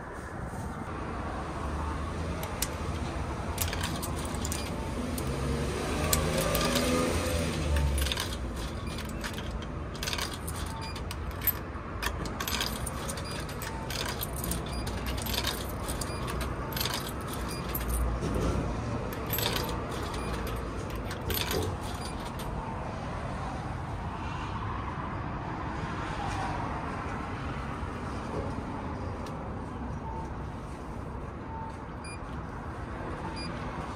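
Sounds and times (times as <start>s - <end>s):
coins clinking into vending machine: 2.4s - 22.6s.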